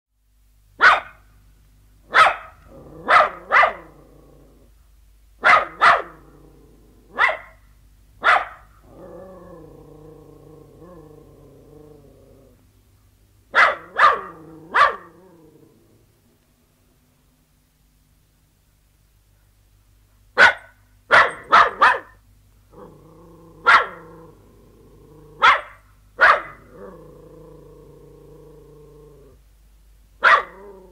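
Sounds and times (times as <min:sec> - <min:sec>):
dog barking: 0:00.8 - 0:01.2, 0:02.1 - 0:04.0, 0:05.4 - 0:06.2, 0:07.1 - 0:07.6, 0:08.2 - 0:08.7, 0:13.5 - 0:15.2, 0:20.4 - 0:22.2, 0:23.6 - 0:24.0, 0:25.4 - 0:26.7, 0:30.2 - 0:30.9
dog growling: 0:02.7 - 0:04.7, 0:06.0 - 0:07.2, 0:08.8 - 0:12.6, 0:13.8 - 0:16.2, 0:22.7 - 0:25.5, 0:26.5 - 0:29.4, 0:30.4 - 0:30.9.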